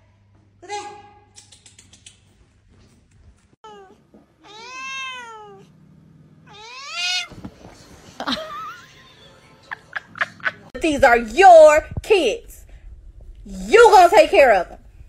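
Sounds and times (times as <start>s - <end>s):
cat meowing: 3.6s - 5.7s, 6.5s - 7.4s.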